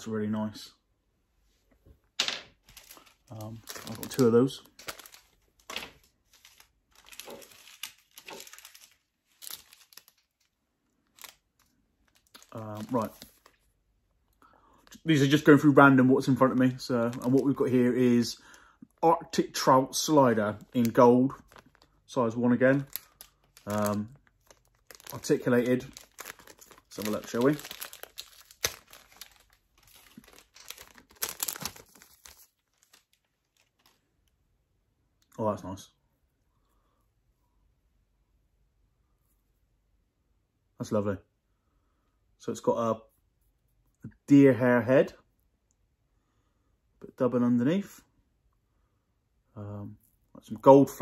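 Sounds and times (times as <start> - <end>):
plastic bags crinkling: 2.2 - 13.7, 16.2 - 18.6, 20.0 - 34.1.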